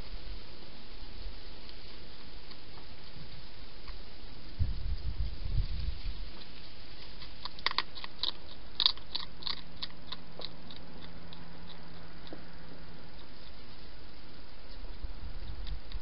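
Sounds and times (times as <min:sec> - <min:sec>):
hedgehog chewing clicks: 0:06.4 - 0:16.0.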